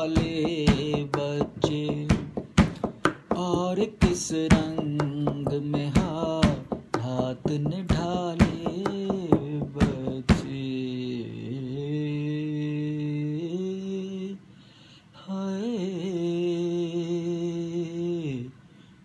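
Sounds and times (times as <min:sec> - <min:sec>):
sharp taps keeping time: 0:00.0 - 0:10.6
man singing unaccompanied: 0:00.0 - 0:14.4, 0:15.2 - 0:18.6.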